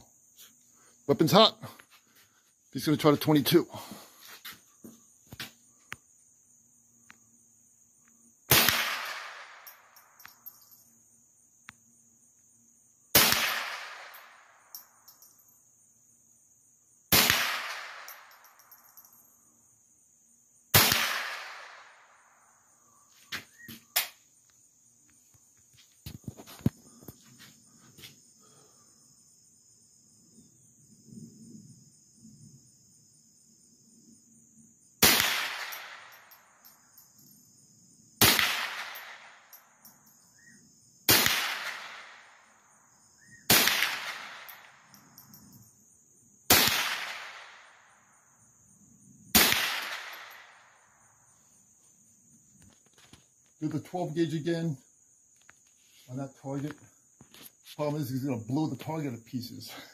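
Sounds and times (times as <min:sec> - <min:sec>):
rifle shots echoing: 0:08.5 - 0:09.9, 0:13.2 - 0:14.5, 0:17.1 - 0:18.4, 0:20.7 - 0:22.0, 0:35.0 - 0:36.4, 0:38.2 - 0:39.5, 0:41.1 - 0:42.4, 0:43.5 - 0:44.8, 0:46.5 - 0:47.8, 0:49.3 - 0:50.7
high insect buzz: 0:39.9 - 0:41.1.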